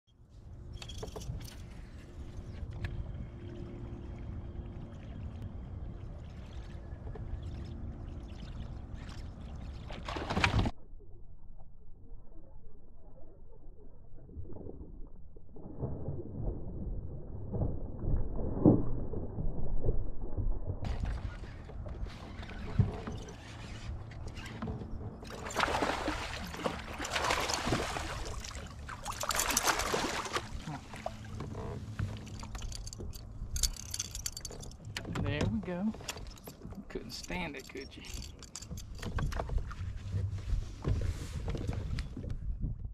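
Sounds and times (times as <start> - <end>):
water gurgling and lapping: 1.4 - 11.2, 13.0 - 42.9
fish splashing at the surface: 25.4 - 30.5
wind rumble on microphone: 38.7 - 42.9.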